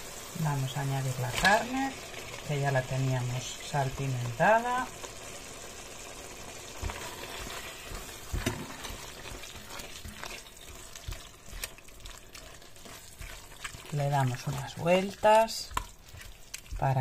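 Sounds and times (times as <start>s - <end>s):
beef sizzling in a pot: 0.0s - 17.0s
spatula knocking and scraping pot: 6.8s - 17.0s.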